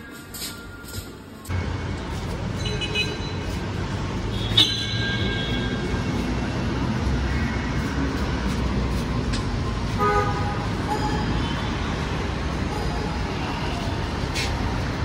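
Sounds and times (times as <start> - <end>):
street traffic rumbling: 0.0 - 15.0.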